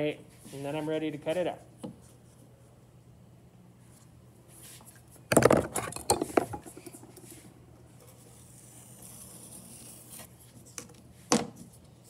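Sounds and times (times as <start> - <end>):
hand tools clattering on table: 5.3 - 7.0
knife scraping along ruler: 8.1 - 10.4.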